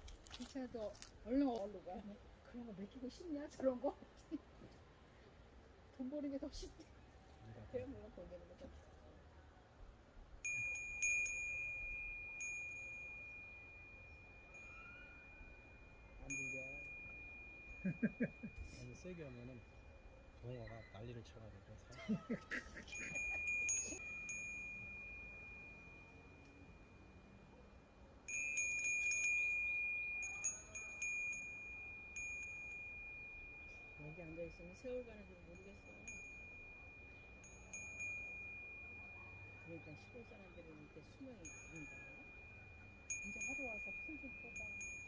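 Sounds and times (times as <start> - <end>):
wind bell ringing: 10.4 - 45.0.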